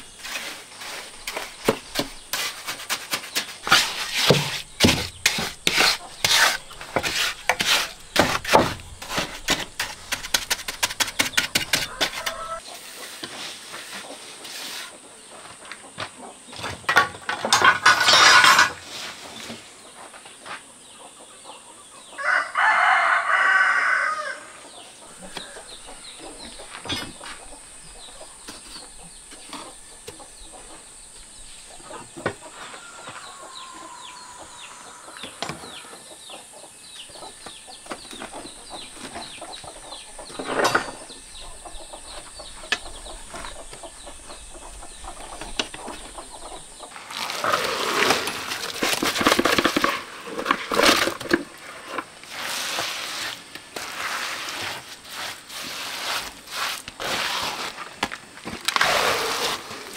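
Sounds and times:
taps and scrapes on wet cement: 0.2s - 12.6s
rooster crowing: 11.9s - 12.6s, 22.2s - 24.6s.

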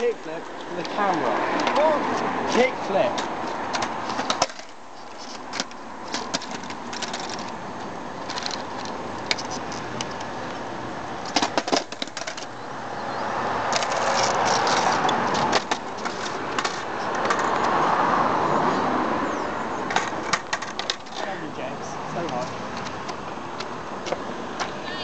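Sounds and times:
skateboard clattering on asphalt: 0.0s - 10.6s, 11.2s - 12.6s, 13.6s - 17.8s, 19.8s - 21.3s.

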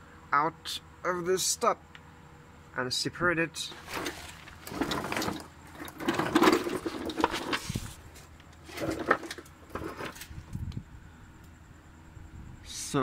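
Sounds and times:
handling rustling and scraping: 3.7s - 10.6s.

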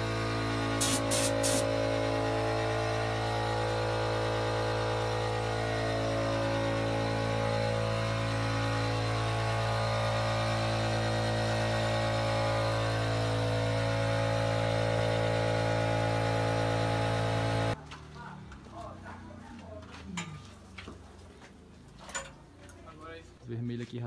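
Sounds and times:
air compressor motor humming: 0.0s - 17.8s.

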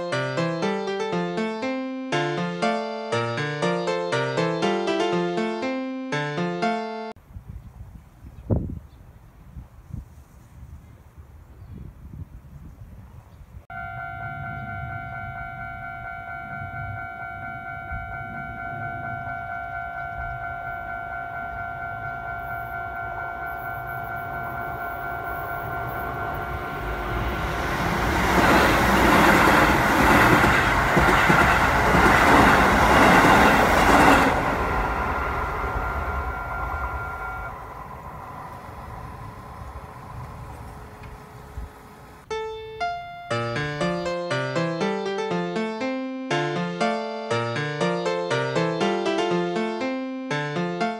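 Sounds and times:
level crossing alarm ringing: 13.7s - 28.0s, 28.7s - 39.3s
electric train passing: 13.7s - 44.9s.

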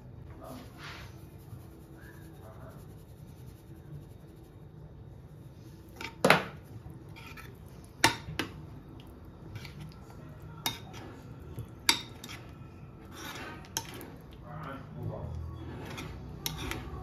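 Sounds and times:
spoon scraping in bowl: 5.8s - 8.6s, 9.4s - 14.4s, 15.4s - 17.0s.

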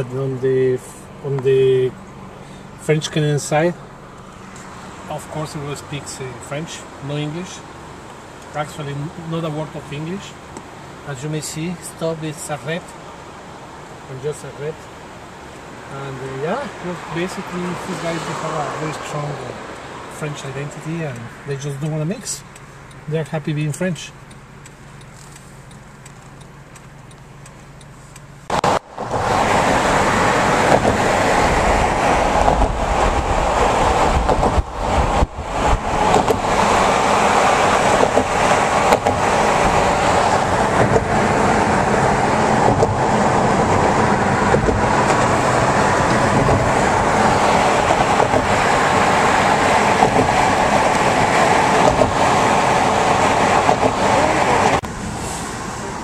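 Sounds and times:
wind and road noise from car: 0.0s - 56.0s.

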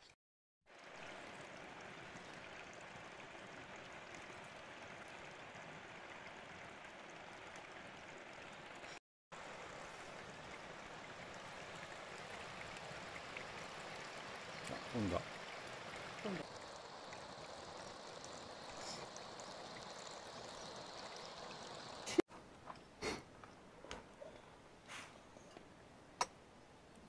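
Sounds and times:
river water flowing over stones: 0.7s - 22.2s.

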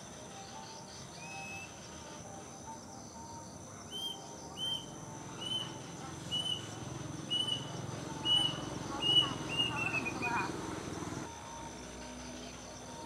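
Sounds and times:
cuckoo whistled notes: 3.9s - 10.3s.

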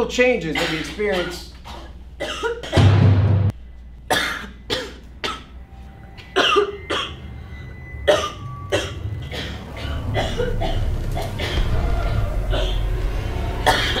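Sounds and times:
person coughing: 0.6s - 2.8s, 4.1s - 5.5s, 6.4s - 7.2s, 8.1s - 11.6s, 12.5s - 12.9s, 13.6s - 14.0s.

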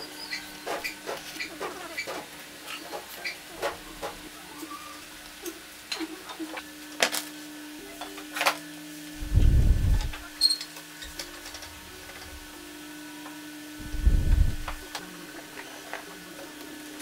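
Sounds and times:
low hum: 9.2s - 10.3s, 13.8s - 14.8s.

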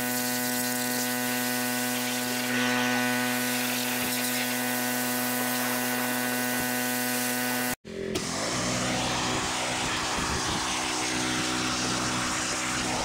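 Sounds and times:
pressure washer droning: 0.0s - 13.0s
water jet hissing on metal: 9.3s - 13.0s.

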